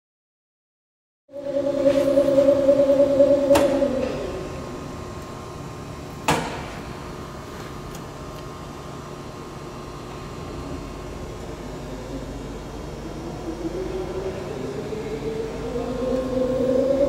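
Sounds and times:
thin high tone: 1.3 - 4.6
electrical cabinet hum: 1.3 - 17.0.

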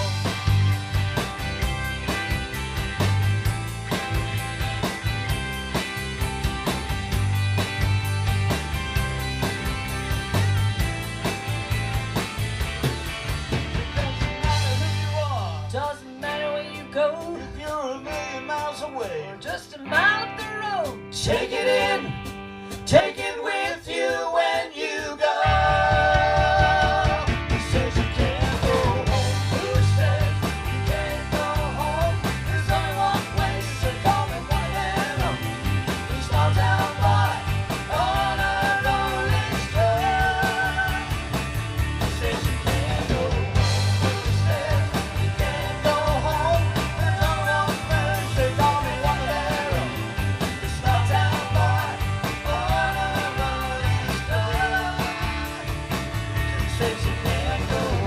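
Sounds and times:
live rock band playing: 0.0 - 58.0
person singing: 42.2 - 55.4.

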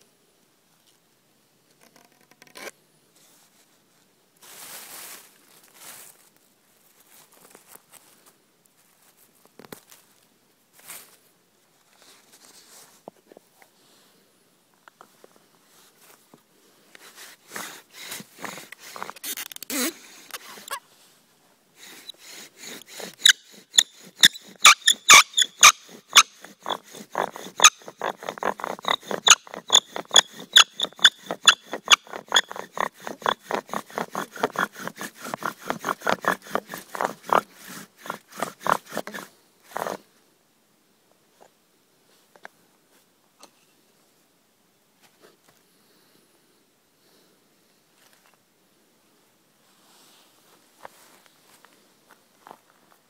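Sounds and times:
bow drill squeaking: 1.8 - 2.7, 17.5 - 20.8, 21.8 - 40.0.

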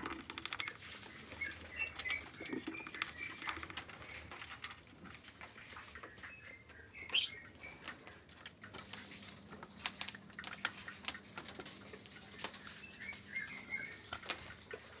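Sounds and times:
birds clicking and tapping in cage: 0.0 - 15.0
faint bird chirps: 6.1 - 7.8.

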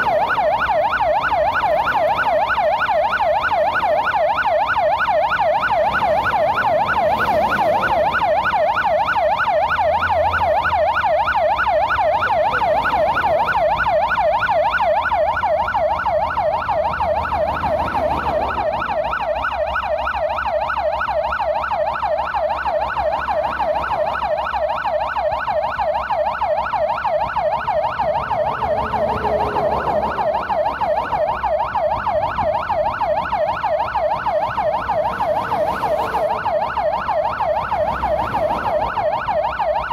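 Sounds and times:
low rumble of engines: 0.0 - 39.9
siren yelping: 0.0 - 39.9.

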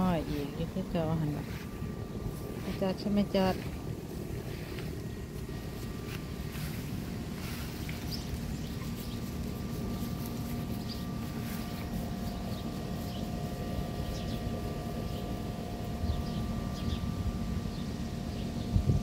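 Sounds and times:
small birds chirping: 0.0 - 17.1
steady machine hum: 0.0 - 19.0
wind rumble on microphone: 18.4 - 19.0.

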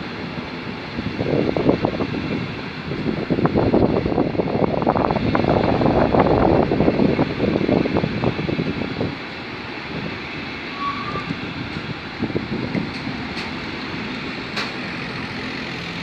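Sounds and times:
train wheels clattering on rails: 7.2 - 16.0.

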